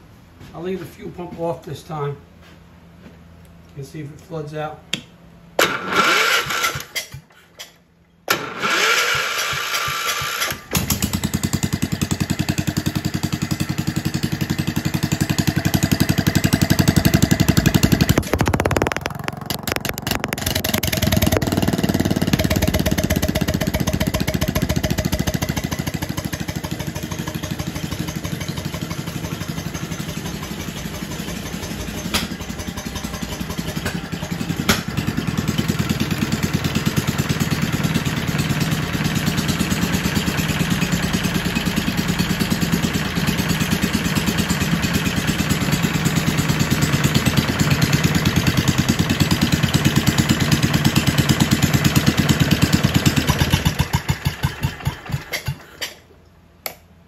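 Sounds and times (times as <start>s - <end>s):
engine idling: 9.4s - 55.7s
sharp clicks: 18.2s - 21.5s.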